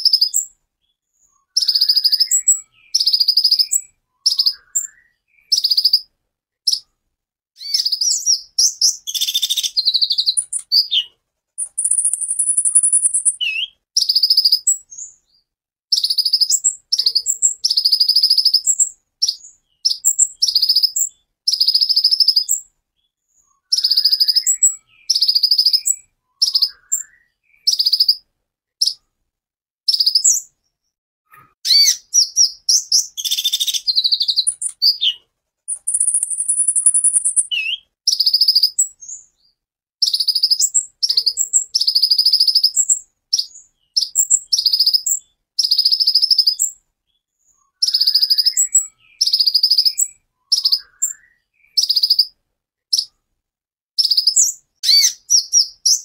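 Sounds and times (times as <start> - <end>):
sunbird singing high phrases: 1.2 - 6.1, 7.6 - 22.7, 23.3 - 29.0, 29.9 - 30.6, 31.4 - 53.2, 54.0 - 56.0
high bird trill: 1.4 - 6.1, 7.6 - 15.2, 15.9 - 22.7, 23.6 - 29.0, 31.4 - 39.2, 47.7 - 53.2, 54.0 - 56.0.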